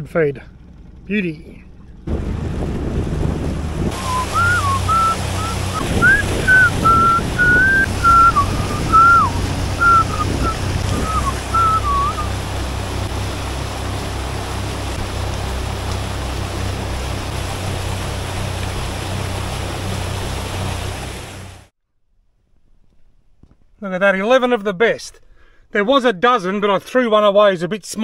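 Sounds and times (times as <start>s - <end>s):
boat motor droning: 0.0s - 21.7s
water wash: 1.7s - 21.7s
person whistling a tune: 4.0s - 12.3s.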